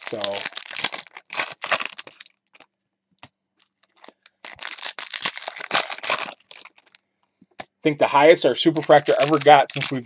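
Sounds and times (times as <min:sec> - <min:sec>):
foil wrapper tearing and crinkling: 0:00.0 - 0:02.7, 0:03.6 - 0:07.0, 0:08.6 - 0:10.0.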